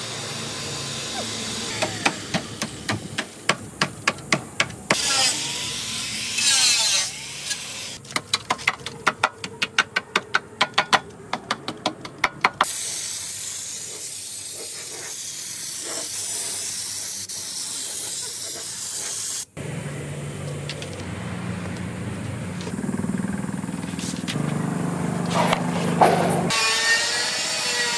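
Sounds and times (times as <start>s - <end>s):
spray gun hissing: 12.7s - 19.5s.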